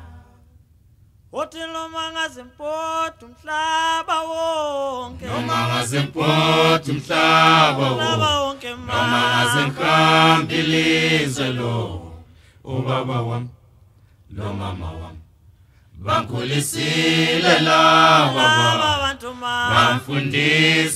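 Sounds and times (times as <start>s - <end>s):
solo voice singing held notes: 1.4s - 13.5s, 16.0s - 20.9s
choir singing sustained chords: 5.1s - 13.7s, 14.3s - 15.3s, 16.0s - 20.9s.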